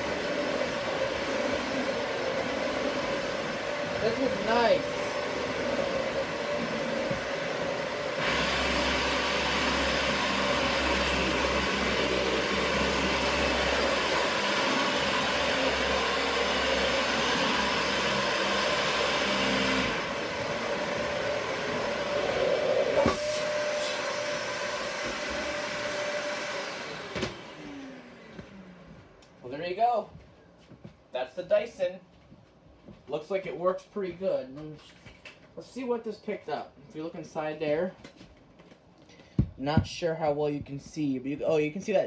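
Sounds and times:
vacuum cleaner motor whining: 0.0 - 29.4.

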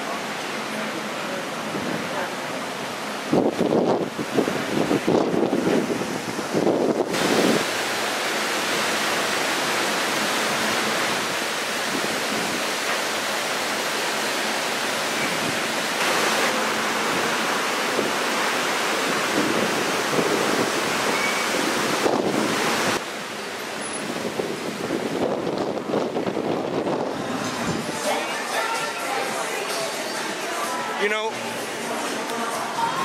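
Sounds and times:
rough sea: 0.0 - 33.0
ship's wake rushing: 0.0 - 33.0
wind on microphone: 3.2 - 7.7, 19.0 - 23.0, 24.0 - 28.2.

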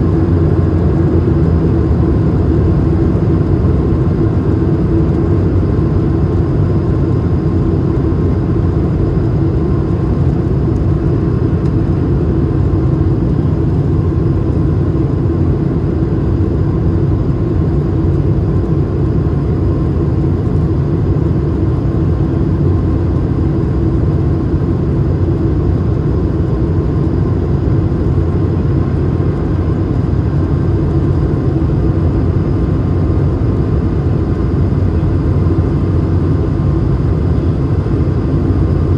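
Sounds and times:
airplane cabin rumble: 0.0 - 38.9.

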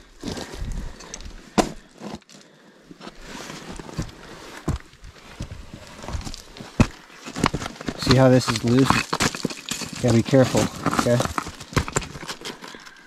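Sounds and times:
rock and grit scraping: 3.2 - 13.0.

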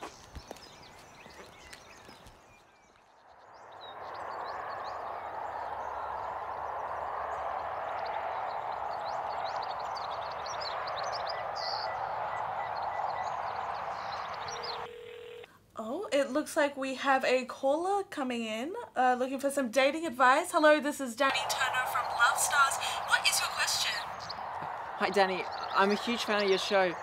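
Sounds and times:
birds chirping: 0.0 - 15.5, 21.2 - 27.0
steady rushing noise: 3.7 - 14.9, 21.3 - 27.0.

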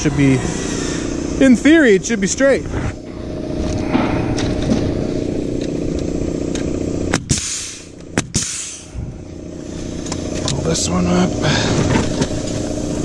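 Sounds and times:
steady motor drone: 0.0 - 13.0
nail gun shots: 7.1 - 8.8
air hiss: 7.3 - 9.0.

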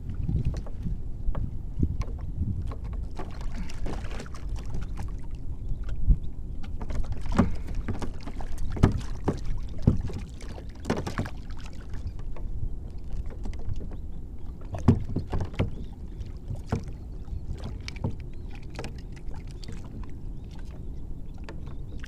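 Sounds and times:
steady low rumble: 0.0 - 8.2
water slapping against kayak hull: 0.0 - 20.8.

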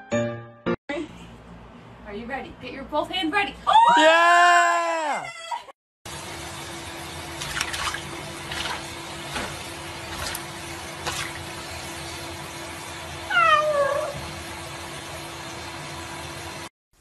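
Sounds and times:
water splashes: 7.4 - 11.7
tap water running into sink: 7.4 - 11.8
cat meowing: 13.3 - 14.2.

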